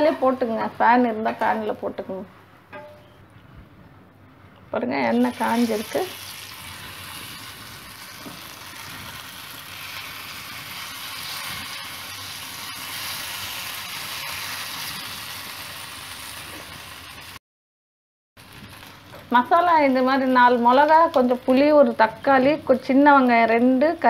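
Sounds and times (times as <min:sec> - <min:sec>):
food sizzling in hot oil: 0:05.2 - 0:17.4, 0:18.4 - 0:22.2.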